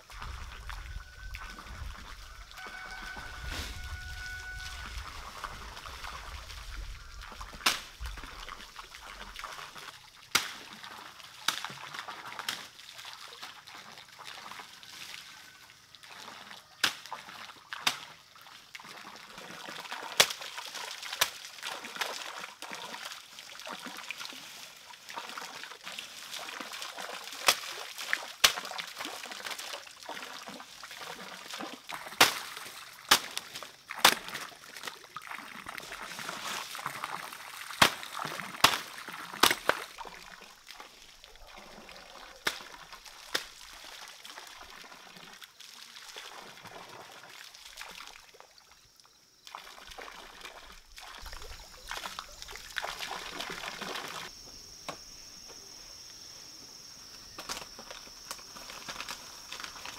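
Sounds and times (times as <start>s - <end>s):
pond water trickling and splashing: 0.0s - 59.9s
machete chopping leafy stalks: 7.6s - 8.0s, 10.3s - 10.6s, 32.1s - 34.4s, 37.8s - 39.9s.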